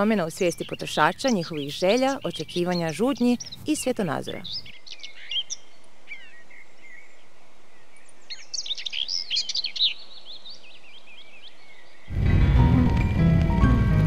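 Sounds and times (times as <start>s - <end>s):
small birds chirping: 0.0s - 12.1s
music: 12.1s - 14.0s.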